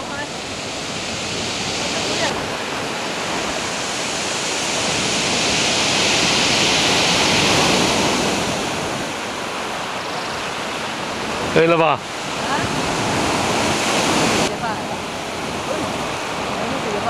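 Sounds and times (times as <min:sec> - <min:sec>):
surf washing up pebbly beach: 0:00.0 - 0:17.0.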